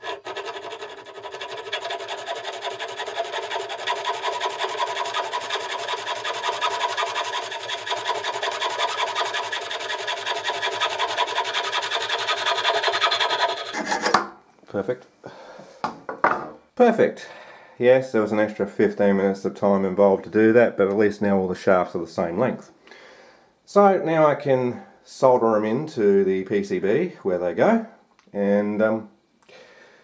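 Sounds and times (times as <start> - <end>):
hand file rasping on metal: 0.0 - 14.2.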